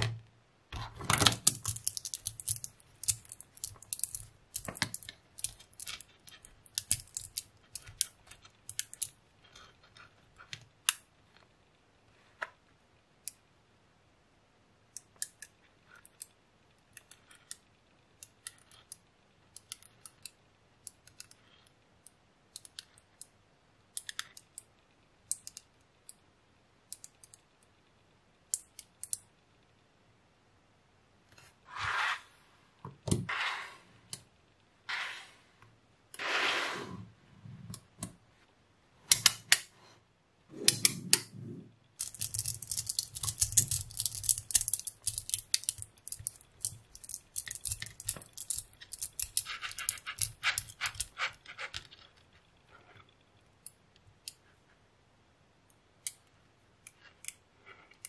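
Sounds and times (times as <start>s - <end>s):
magnetic balls clicking together: 1.1s - 9.2s, 42.0s - 52.2s.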